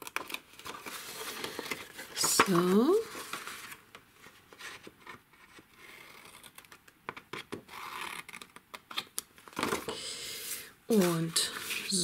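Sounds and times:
paper rustling and sliding: 0.6 - 6.4, 9.6 - 12.0.

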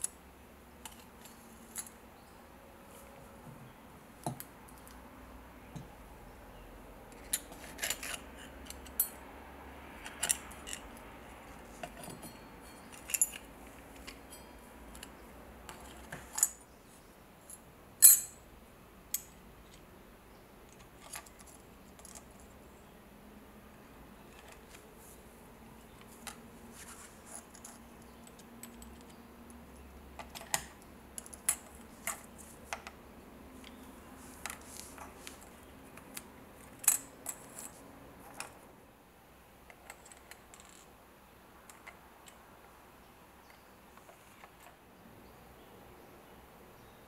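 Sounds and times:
small parts clicking and clinking: 10.0 - 16.6, 33.6 - 38.6, 39.7 - 40.9.

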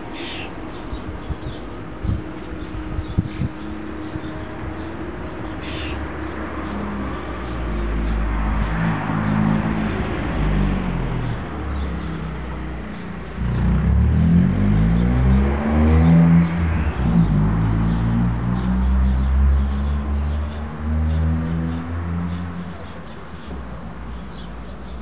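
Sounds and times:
vehicle engine revving: 12.8 - 22.7.

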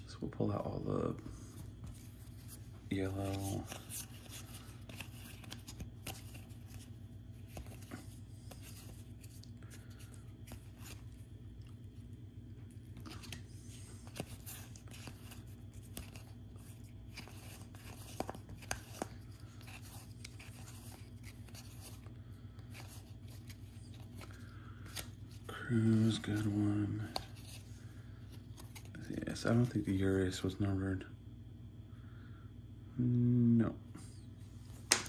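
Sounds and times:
steady low hum: 0.0 - 35.0
cards clicking and rustling: 1.8 - 11.9, 12.7 - 27.6.

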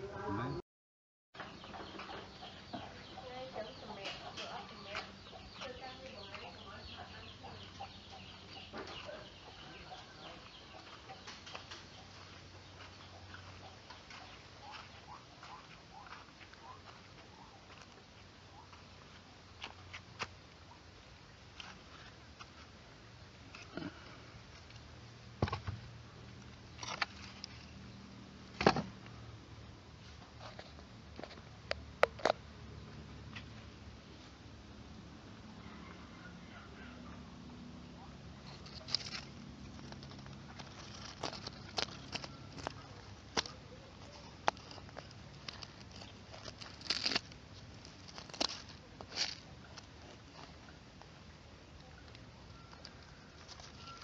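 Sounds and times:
chickens clucking: 1.4 - 17.5
faint low hum: 1.4 - 54.0.

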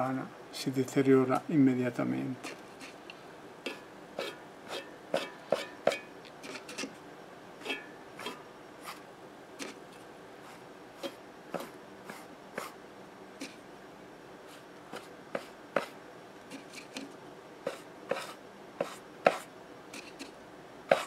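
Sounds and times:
light clicks and scrapes: 2.4 - 7.0, 16.5 - 21.0.

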